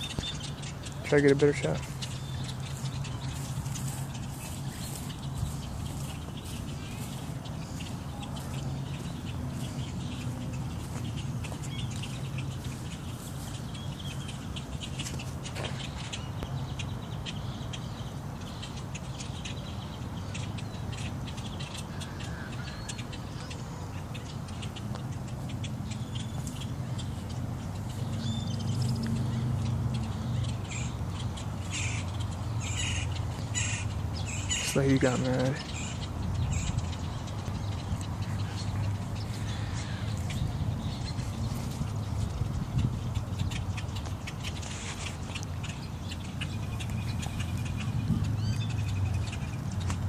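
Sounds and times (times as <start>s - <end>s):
small birds chirping alarm calls: 0.0s - 49.9s
harsh crow caw: 21.9s - 23.0s, 31.7s - 32.0s, 32.6s - 34.7s.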